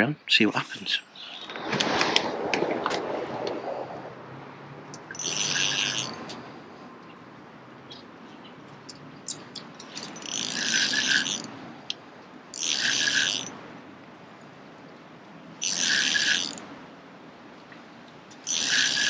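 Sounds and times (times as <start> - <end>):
fishing reel winding: 5.0 - 6.2, 9.9 - 11.5, 12.6 - 13.6, 15.6 - 16.6, 18.5 - 19.0.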